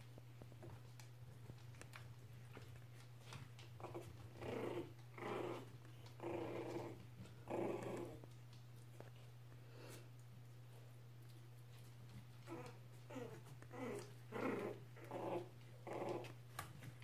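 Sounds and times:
puppies growling: 2.5 - 8.6, 12.4 - 16.9.

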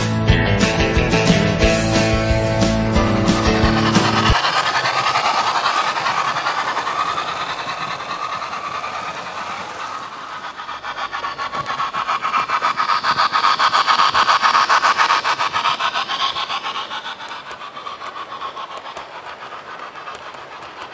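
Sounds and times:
locomotive motor hum: 0.0 - 20.9
model train wheels rattling: 1.6 - 20.9.

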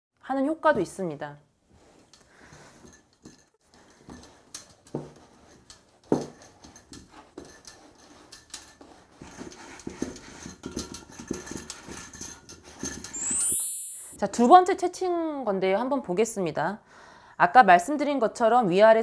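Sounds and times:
hands scraping over sieve mesh: 3.7 - 13.8.

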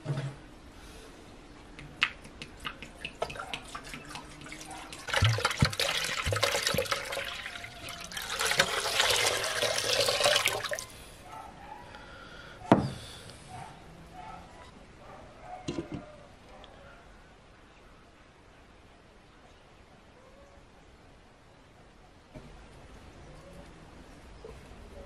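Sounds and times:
water pouring into pot: 4.0 - 10.9.

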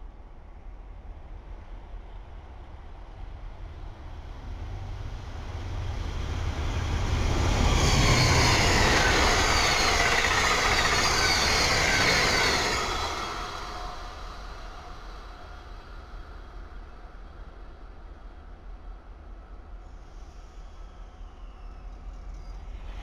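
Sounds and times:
train wheels on rail: 1.4 - 18.0.

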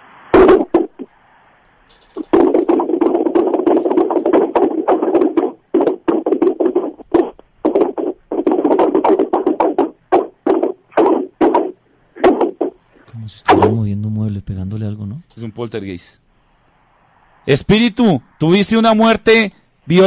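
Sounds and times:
knocking and banging over phone: 2.1 - 12.8.

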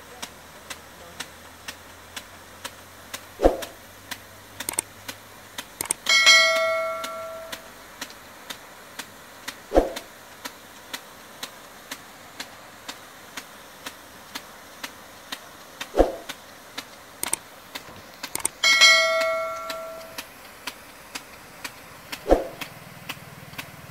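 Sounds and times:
sprinkler arm ticking: 0.0 - 23.9
water sprinkler spraying: 0.0 - 23.9
metallic clang: 5.8 - 7.7, 18.6 - 20.2.

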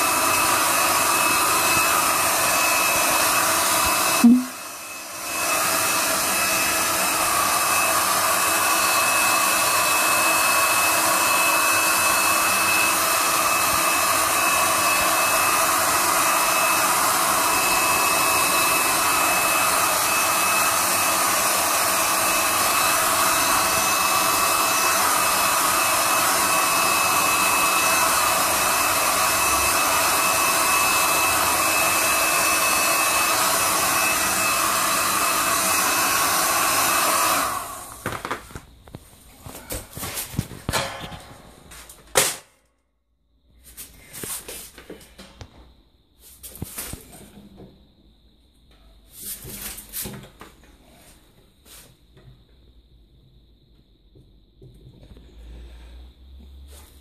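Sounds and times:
heat gun fan blowing: 0.0 - 38.4.

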